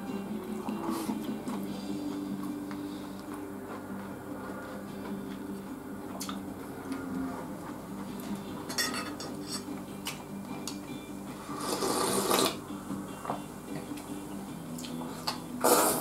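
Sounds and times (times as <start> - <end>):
loud slurp from a bowl: 11.6 - 12.6, 15.6 - 16.0.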